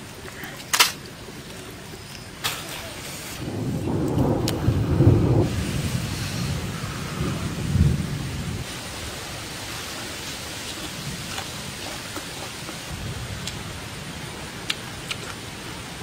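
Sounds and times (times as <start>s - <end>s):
stream water rushing: 8.6s - 16.0s.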